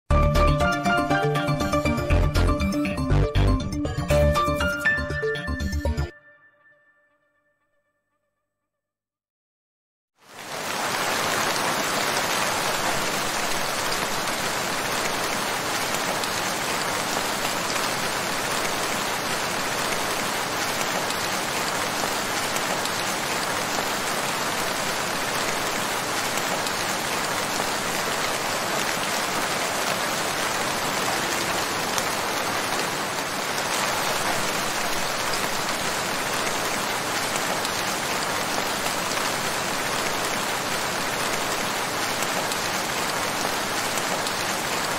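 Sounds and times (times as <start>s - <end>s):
heavy rain falling: 10.2s - 44.9s.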